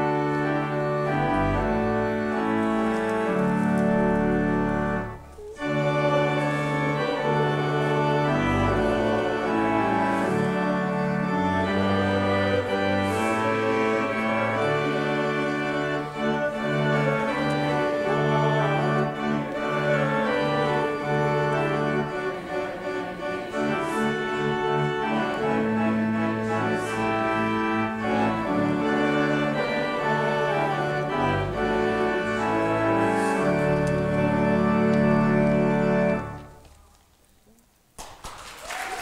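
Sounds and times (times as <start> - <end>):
church organ playing chords: 0.0 - 36.8.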